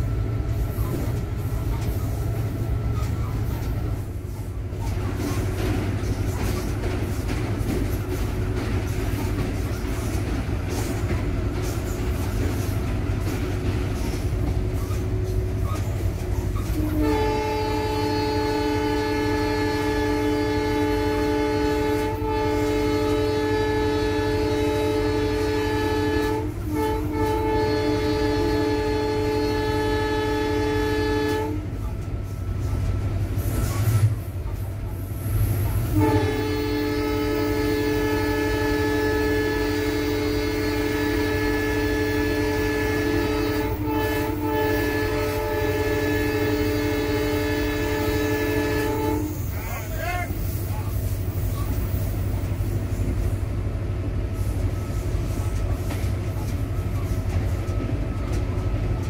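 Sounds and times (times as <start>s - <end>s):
diesel locomotive rumble: 0.0s - 59.0s
locomotive air horn: 14.0s - 32.0s, 35.9s - 53.1s.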